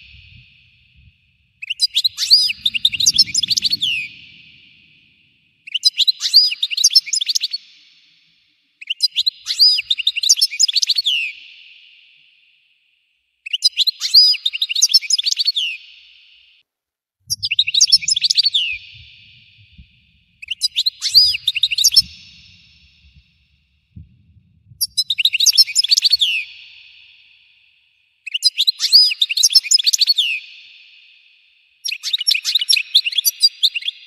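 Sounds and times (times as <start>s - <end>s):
goldfinch twittering song: 17.3s - 19.8s, 20.4s - 22.9s, 24.8s - 26.6s.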